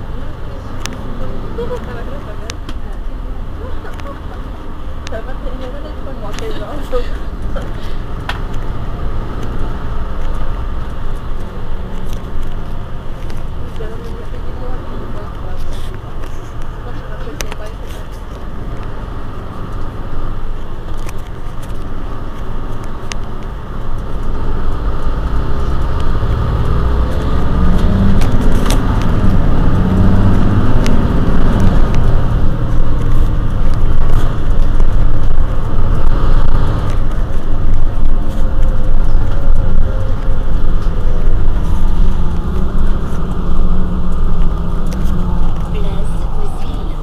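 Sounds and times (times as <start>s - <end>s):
diesel bus engine rumbling: 0.0s - 47.0s.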